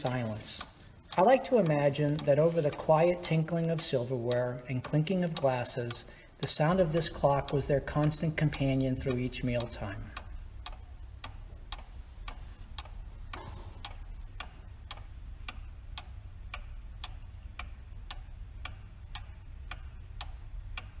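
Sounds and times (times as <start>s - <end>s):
faint low hum: 0.0s - 21.0s
wall clock ticking: 0.0s - 21.0s.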